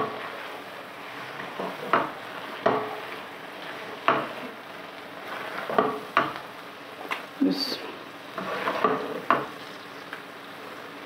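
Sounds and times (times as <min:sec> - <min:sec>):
spatula scraping pan: 0:00.0 - 0:07.2, 0:08.3 - 0:10.1
low sizzle: 0:00.0 - 0:11.0
spatula knocking against pan: 0:04.0 - 0:04.3, 0:05.7 - 0:06.4.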